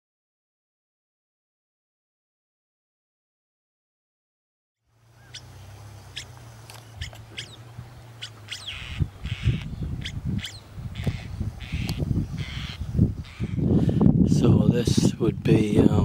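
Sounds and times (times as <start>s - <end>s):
birds calling: 4.9s - 16.0s
wind on microphone: 5.2s - 16.0s.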